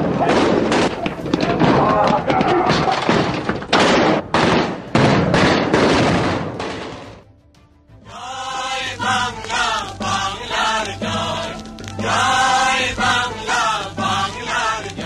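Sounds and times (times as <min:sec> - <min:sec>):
gunfire and blasts: 0:03.1 - 0:07.2
choir chanting: 0:08.0 - 0:15.0.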